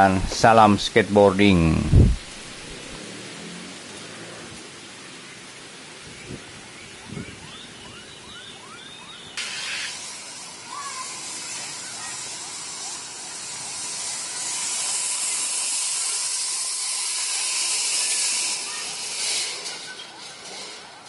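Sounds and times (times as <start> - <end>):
high-pitched hiss: 0.0 - 3.0, 9.4 - 20.8.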